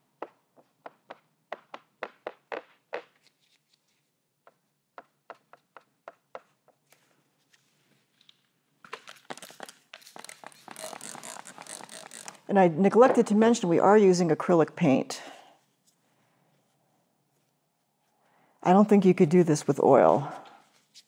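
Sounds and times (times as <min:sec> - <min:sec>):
sponge tapping on paper: 0:00.2 - 0:03.1, 0:04.4 - 0:06.9.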